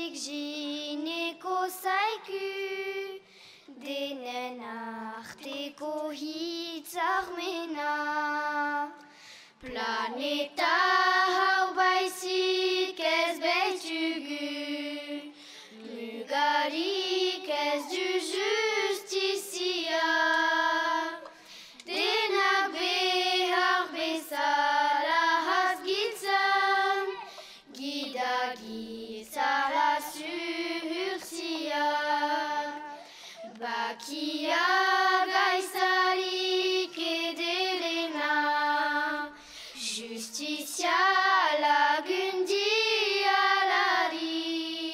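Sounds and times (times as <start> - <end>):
girls singing unaccompanied: 0.0 - 44.9.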